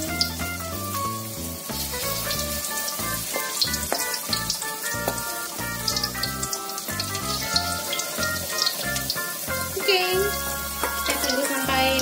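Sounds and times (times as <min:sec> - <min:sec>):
background music with bass line: 0:00.0 - 0:12.0
deep-frying sizzle and crackles: 0:00.0 - 0:12.0.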